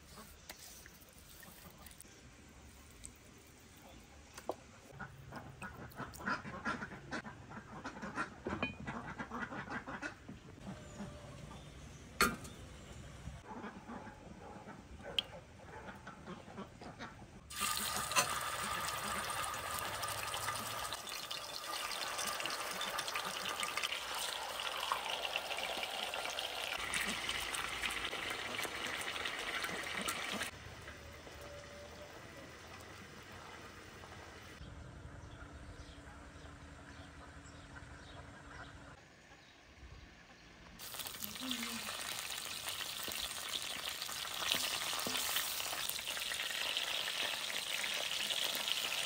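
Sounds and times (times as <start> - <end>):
quiet outdoor background: 0.0 - 49.0
chicken sizzling in hot oil: 17.5 - 30.5, 40.8 - 49.0.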